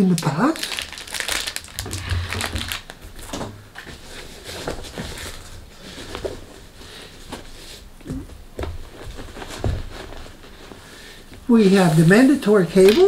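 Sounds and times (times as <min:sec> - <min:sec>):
rustling inside fabric bag: 0:08.8 - 0:13.0.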